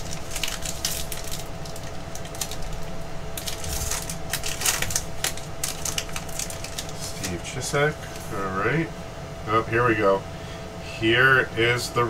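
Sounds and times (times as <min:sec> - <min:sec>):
card pack wrapper tearing and crinkling: 0:00.0 - 0:07.4.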